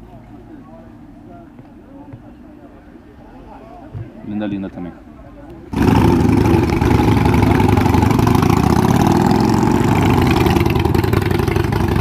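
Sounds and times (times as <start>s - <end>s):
motorcycle engines running: 5.7s - 12.0s.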